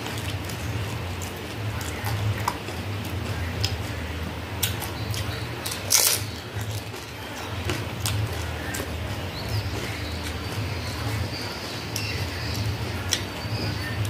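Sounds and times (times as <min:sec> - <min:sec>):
steady low hum: 0:00.0 - 0:14.0
loud crunch of biting: 0:04.6 - 0:09.0
crisp clicks and crackles: 0:04.6 - 0:14.0.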